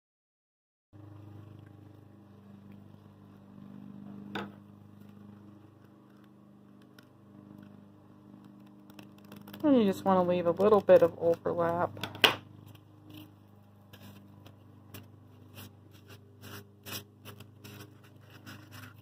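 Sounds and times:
faint low hum: 1.0 - 19.0
ribbon being folded by hand: 5.0 - 11.6, 12.6 - 19.0.

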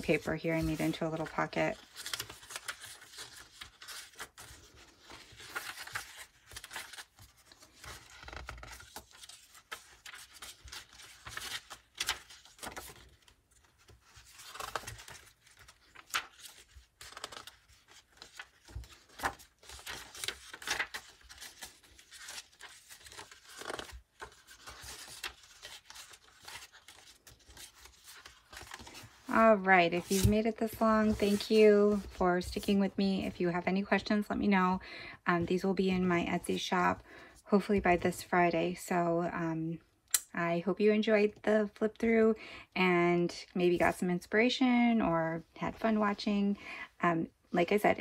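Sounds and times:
paper pages rustling: 0.0 - 34.0.

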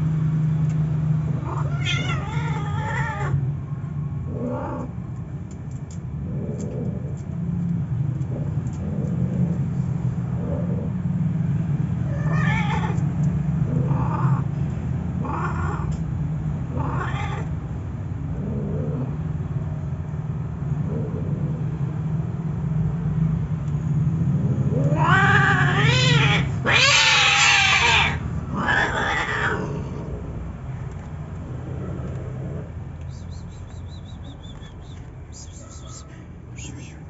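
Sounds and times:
cat screeching: 1.4 - 3.4, 12.0 - 13.0, 15.2 - 15.9, 16.7 - 17.5, 24.7 - 30.0, 35.4 - 36.9
cat yowling: 1.4 - 3.4, 12.0 - 13.0, 16.7 - 17.5, 24.7 - 30.0, 35.4 - 36.9.

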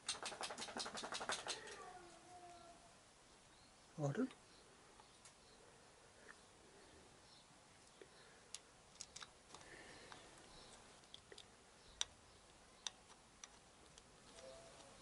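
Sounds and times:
small metal clicks and taps: 8.5 - 10.2, 12.8 - 14.1.

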